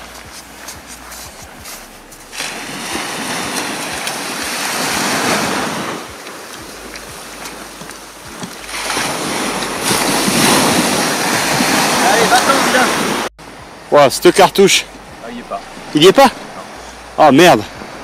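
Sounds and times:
waves breaking on sand beach: 0.0s - 18.0s.

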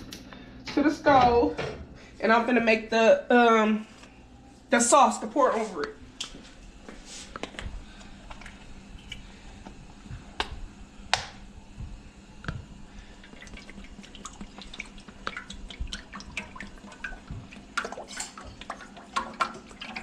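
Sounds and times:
cream glugging and splashing into pan: 13.0s - 20.0s.

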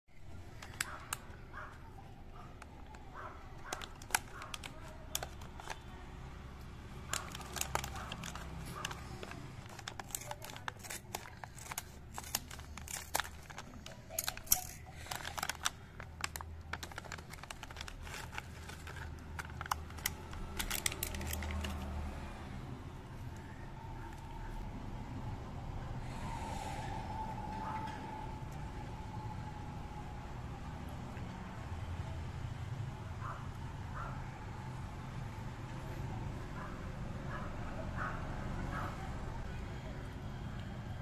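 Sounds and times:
plastic pouch crinkling: 0.2s - 22.1s
scissors cutting plastic: 0.3s - 6.0s, 6.6s - 22.2s.

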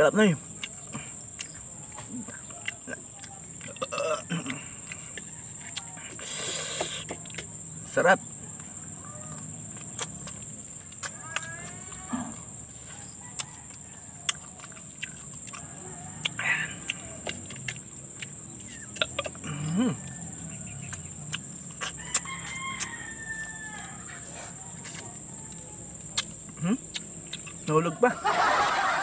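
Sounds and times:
lip smacks and chewing clicks: 0.5s - 7.6s, 9.4s - 12.0s, 13.2s - 23.0s, 24.8s - 27.9s.

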